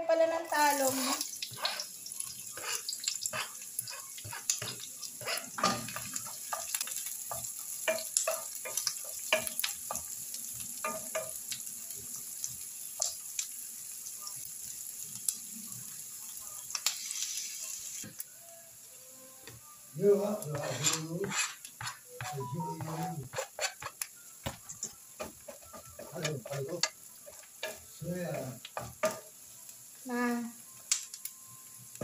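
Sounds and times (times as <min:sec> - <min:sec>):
onion sizzling in frying pan: 0:00.0 - 0:32.0
wooden spoon scraping and stirring: 0:00.9 - 0:01.9, 0:02.6 - 0:06.7, 0:20.4 - 0:29.2.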